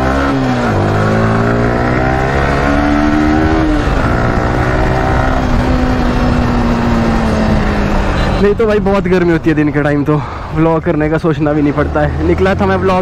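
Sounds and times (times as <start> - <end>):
motorcycle engine accelerating: 0.0 - 9.8.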